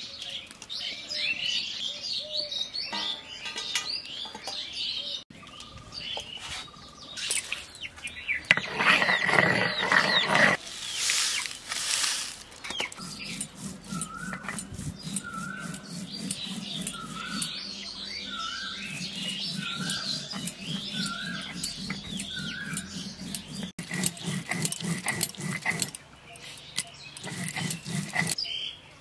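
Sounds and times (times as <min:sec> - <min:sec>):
stone roller scraping and knocking: 0:08.4 - 0:28.4
bird calling: 0:12.4 - 0:28.8.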